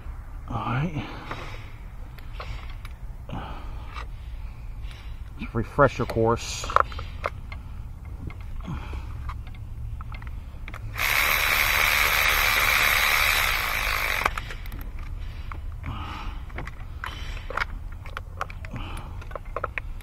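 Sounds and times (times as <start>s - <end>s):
tools clicking and tapping: 9.2s - 11.1s, 13.2s - 20.0s
cordless electric ratchet spinning: 10.9s - 14.8s.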